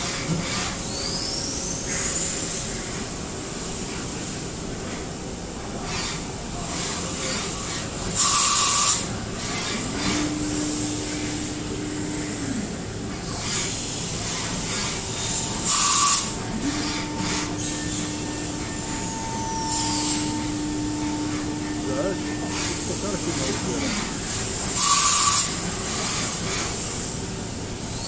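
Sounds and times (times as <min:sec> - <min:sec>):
machine hum: 0:07.5 - 0:28.0
spindle whining: 0:09.8 - 0:25.7.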